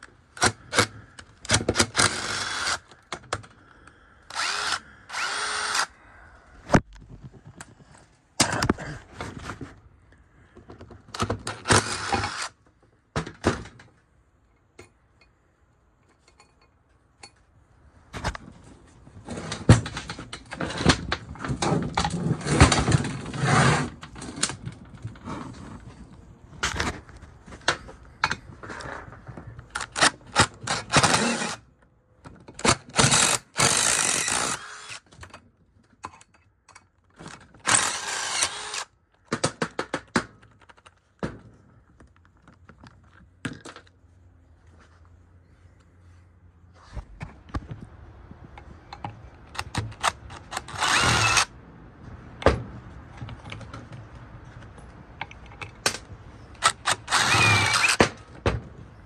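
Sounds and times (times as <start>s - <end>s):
power drill spinning in bursts: 1.8s - 2.9s, 4.3s - 5.9s, 11.6s - 12.5s, 30.6s - 31.6s, 33.0s - 35.0s, 37.6s - 38.9s, 50.4s - 51.5s, 56.6s - 58.0s
metal parts and tools clinking: 16.0s - 17.4s.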